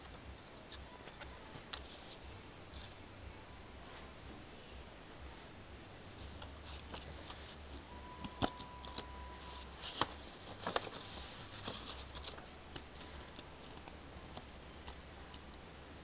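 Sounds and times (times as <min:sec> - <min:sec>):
low steady hum: 0:00.0 - 0:16.0
paper booklet rustling: 0:06.2 - 0:14.5.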